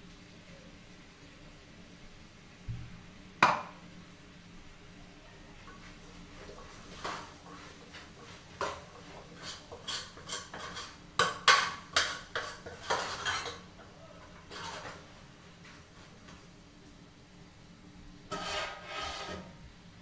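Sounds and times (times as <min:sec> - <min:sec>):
spoon scraping a steel pot: 0:06.9 - 0:13.7, 0:14.4 - 0:15.0, 0:18.3 - 0:19.6.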